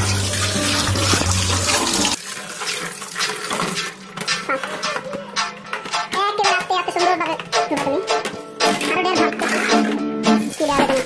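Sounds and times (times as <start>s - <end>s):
tap water running into sink: 0.0s - 4.0s.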